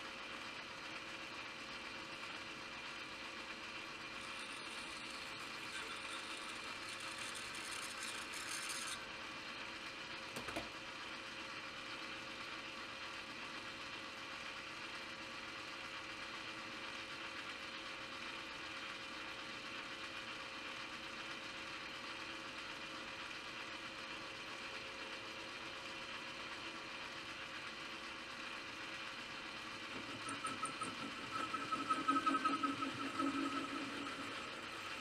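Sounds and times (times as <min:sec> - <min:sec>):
metal lathe humming: 0:04.1 - 0:09.1, 0:29.4 - 0:35.0.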